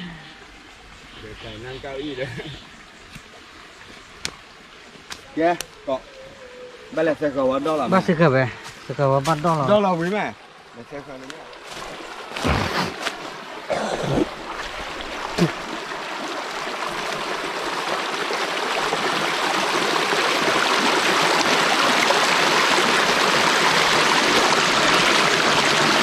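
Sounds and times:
rushing splashing water: 6.9s - 26.0s.

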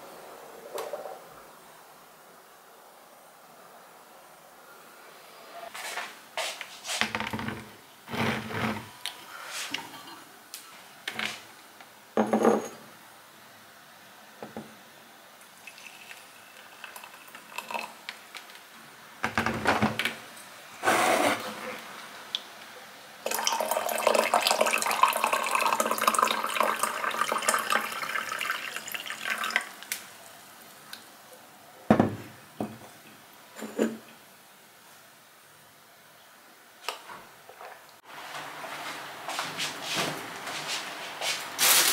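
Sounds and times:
water pouring into a mug: 15.6s - 18.0s, 23.2s - 29.9s.

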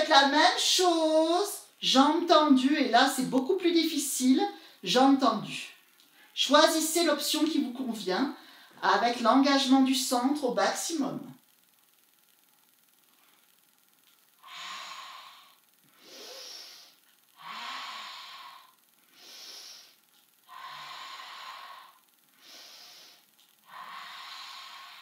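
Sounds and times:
woman breathing rhythmically: 4.5s - 4.8s, 8.4s - 8.8s, 12.7s - 25.0s.

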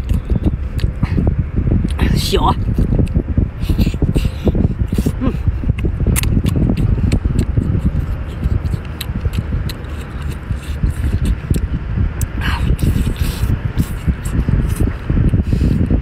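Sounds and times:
low rumble: 0.0s - 16.0s.

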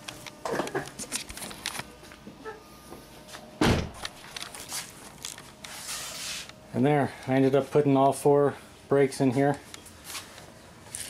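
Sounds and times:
car door shutting: 3.6s - 4.0s.

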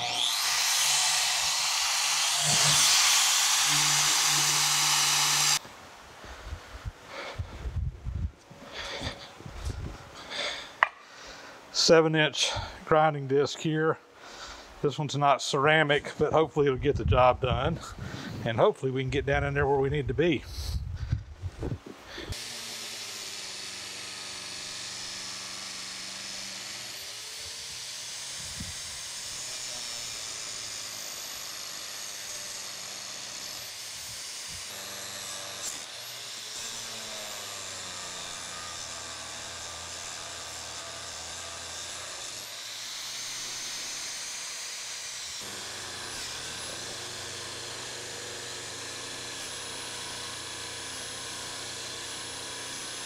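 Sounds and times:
angle grinder grinding metal: 0.0s - 5.6s, 8.6s - 11.0s, 22.1s - 53.0s.

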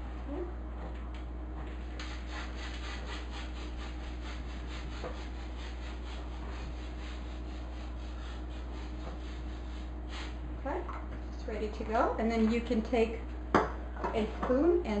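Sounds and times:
rapid rubbing strokes: 1.6s - 10.4s.

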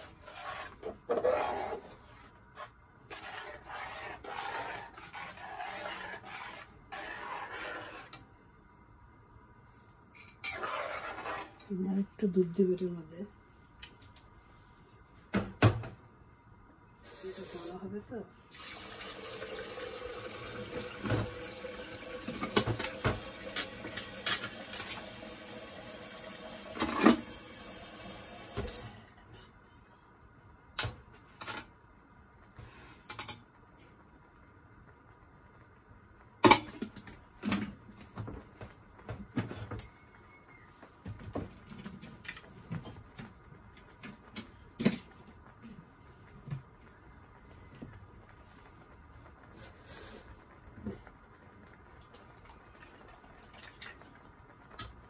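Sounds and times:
kitchen tap running: 18.5s - 28.9s.

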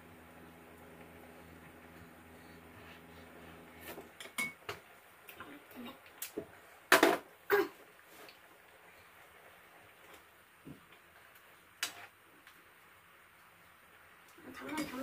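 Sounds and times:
dishes clinking on a table: 4.2s - 4.7s.

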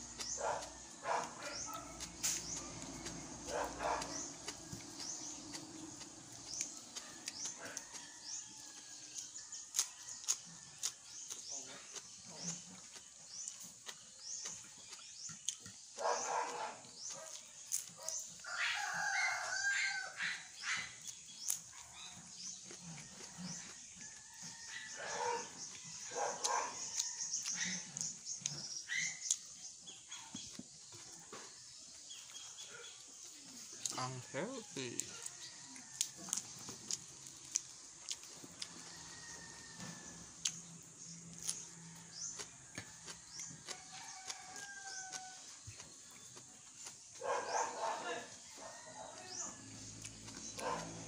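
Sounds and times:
animal calls: 0.0s - 8.0s, 47.2s - 51.0s
man chewing and lip-smacking: 0.0s - 18.4s, 20.9s - 31.1s, 34.9s - 39.3s, 40.2s - 47.2s.

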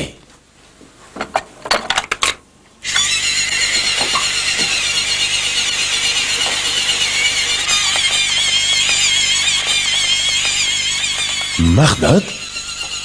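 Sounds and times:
electric toothbrush buzzing: 2.8s - 13.0s.

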